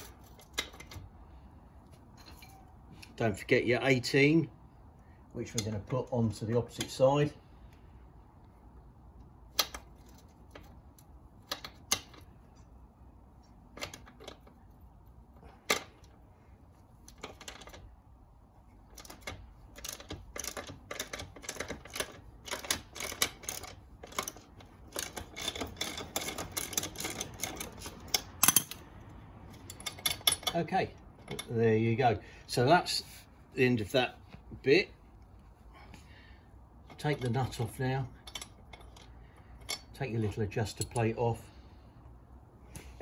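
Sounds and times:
socket ratchet clicking: 0:18.9 - 0:28.9.

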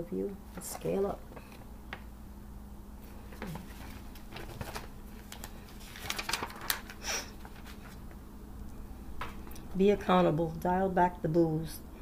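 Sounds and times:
magazine pages rustling: 0:03.2 - 0:08.2.

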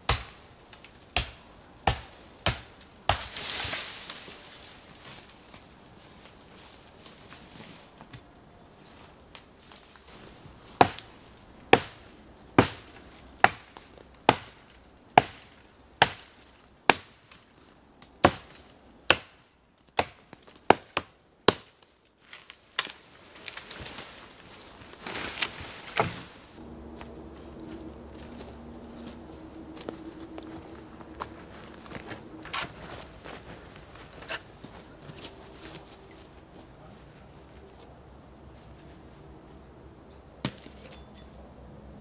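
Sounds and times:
branches rustling and cracking: 0:00.0 - 0:39.1
axe strikes on wood: 0:00.1 - 0:00.3, 0:16.0 - 0:16.3.

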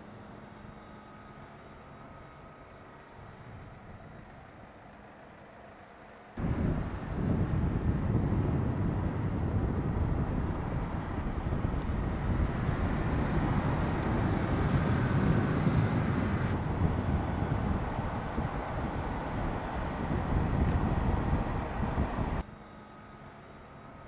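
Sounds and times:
car engine rumbling at speed: 0:00.0 - 0:22.4
wind noise: 0:06.4 - 0:22.4.

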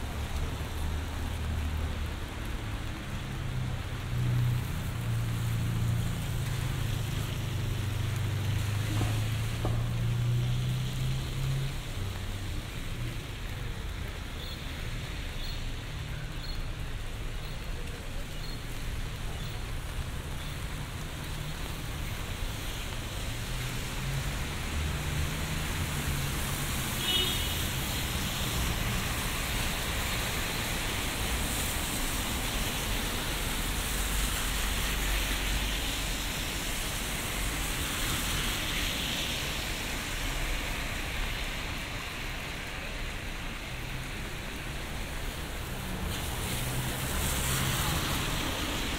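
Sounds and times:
car tyres hissing on wet road: 0:00.0 - 0:48.9
low traffic rumble: 0:00.0 - 0:48.9
rain on an umbrella: 0:00.0 - 0:48.9.

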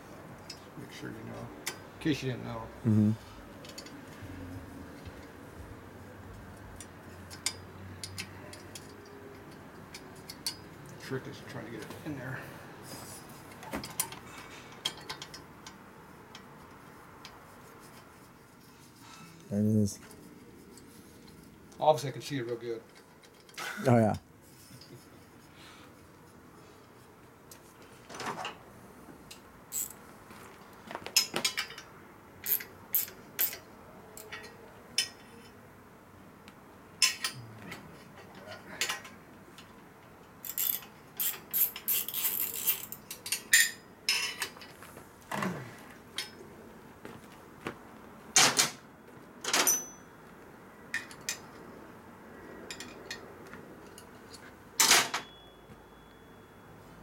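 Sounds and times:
hand tools clinking on metal: 0:31.2 - 0:33.6, 0:40.4 - 0:44.7, 0:49.5 - 0:50.1.

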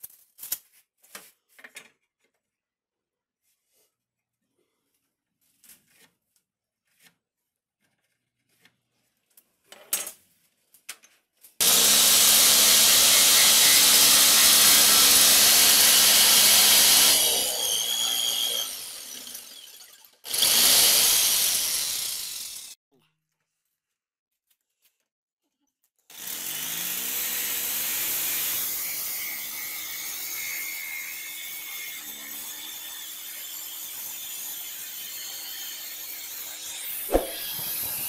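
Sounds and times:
electric jigsaw cutting wood: 0:11.6 - 0:22.8, 0:26.1 - 0:38.0.

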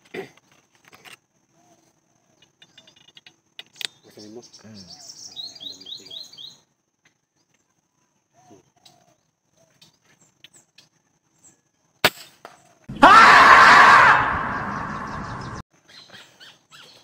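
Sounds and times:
marmot screaming: 0:12.9 - 0:15.6.

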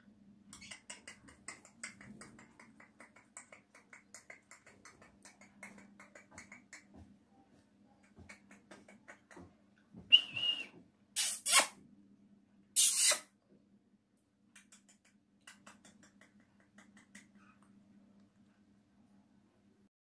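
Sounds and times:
parakeet harsh screeches: 0:11.2 - 0:11.8, 0:12.8 - 0:13.3.

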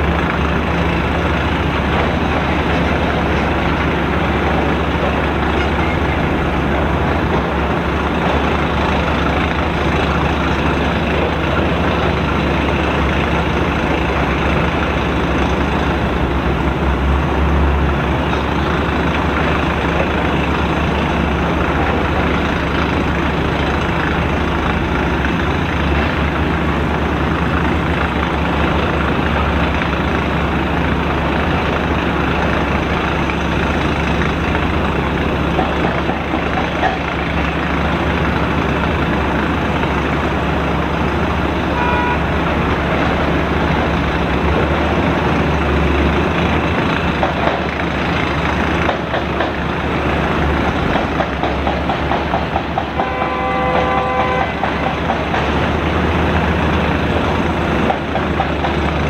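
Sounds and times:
heavy diesel engines rumbling: 0:00.0 - 0:59.0
horn toot: 0:41.8 - 0:42.3, 0:53.0 - 0:54.6.

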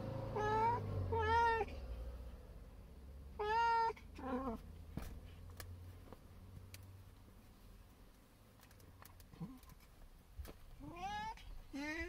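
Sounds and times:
cat meowing: 0:00.4 - 0:01.7, 0:03.4 - 0:04.6, 0:10.8 - 0:12.0.

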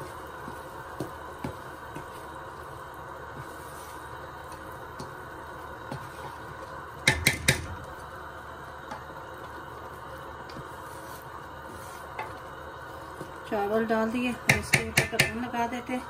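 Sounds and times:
spatula stirring rice in pot: 0:00.0 - 0:13.6
spatula knocking against pot: 0:07.0 - 0:07.8, 0:14.5 - 0:15.4.

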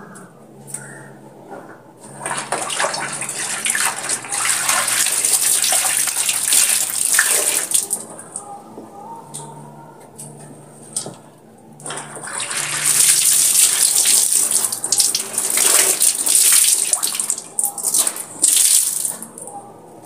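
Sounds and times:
laundry splashing in tub of water: 0:02.2 - 0:08.0, 0:11.9 - 0:19.3.

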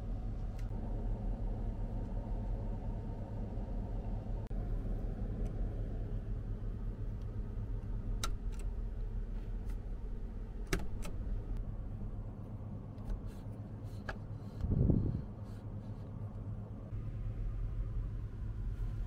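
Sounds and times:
steady low hum: 0:00.0 - 0:19.0
rocker switch clicks: 0:10.6 - 0:11.2
air vent rush: 0:12.8 - 0:17.2.

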